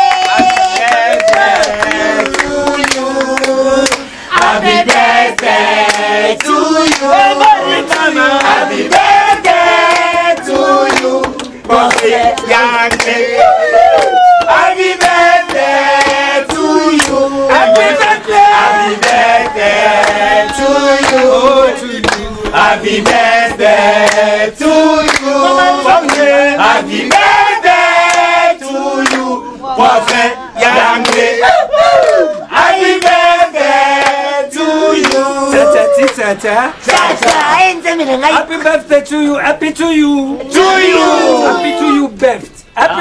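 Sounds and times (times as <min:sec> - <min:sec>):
hand claps: 0:00.0 - 0:07.1, 0:07.9 - 0:13.2, 0:13.8 - 0:18.0, 0:19.0 - 0:21.3, 0:22.0 - 0:24.3, 0:25.0 - 0:25.3, 0:26.0 - 0:26.3, 0:28.0 - 0:28.3, 0:29.0 - 0:29.3, 0:30.0 - 0:30.2, 0:31.0 - 0:31.3, 0:33.0 - 0:33.2, 0:33.9 - 0:34.2, 0:35.0 - 0:36.2, 0:36.9 - 0:37.5
group of voices chanting: 0:00.0 - 0:37.8, 0:40.4 - 0:42.1.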